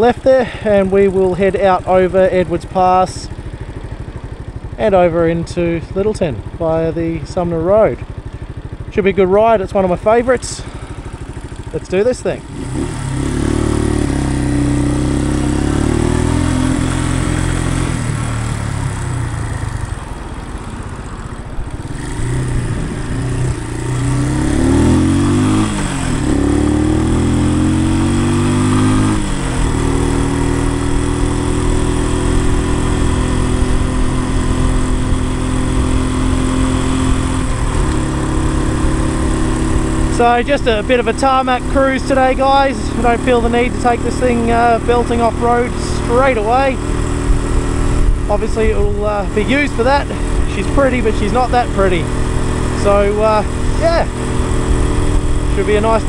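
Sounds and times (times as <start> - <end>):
motorcycle engine accelerating: 0.0 - 56.0
wind noise: 21.6 - 23.6.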